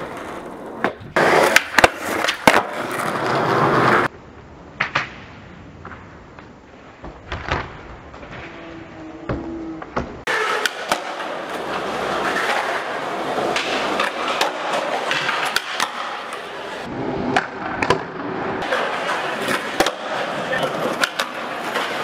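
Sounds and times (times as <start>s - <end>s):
skateboard clacks: 0.0s - 4.1s, 9.9s - 22.0s
skateboard grinding on concrete ledge: 0.0s - 4.1s
skateboard wheels rolling on concrete: 0.0s - 22.0s.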